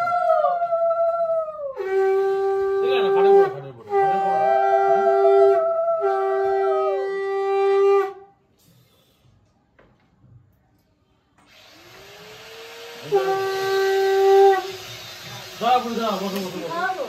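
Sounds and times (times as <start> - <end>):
conch shell blasts: 13.0 - 15.4.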